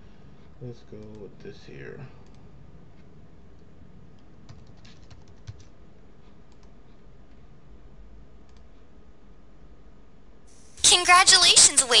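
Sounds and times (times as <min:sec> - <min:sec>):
computer keyboard typing: 0:01.0 - 0:01.3, 0:03.6 - 0:05.8, 0:06.5 - 0:07.0.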